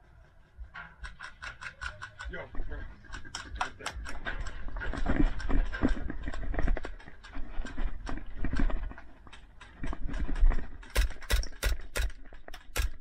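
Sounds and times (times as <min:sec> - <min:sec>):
hurried footsteps on dirt: 0:02.3 - 0:12.9.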